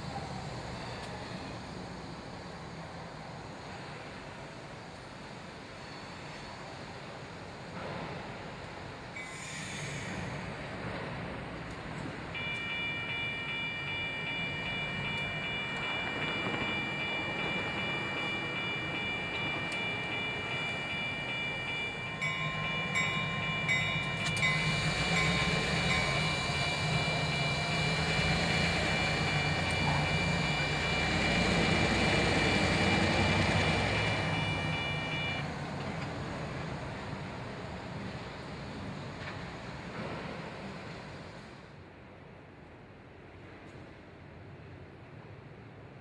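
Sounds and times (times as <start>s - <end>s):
diesel locomotive engine hum: 0.0s - 46.0s
train rolling noise: 0.0s - 46.0s
steady high-pitched tone: 12.4s - 35.4s.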